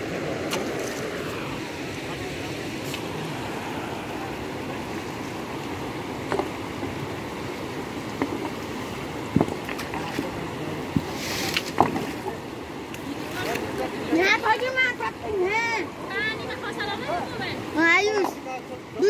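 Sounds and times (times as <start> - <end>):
rocky river rushing: 0.0 - 19.0.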